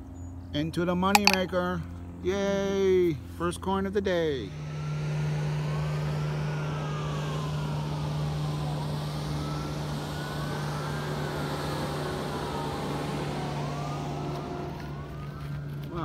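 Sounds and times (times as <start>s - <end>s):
sirens wailing: 6.0s - 16.0s.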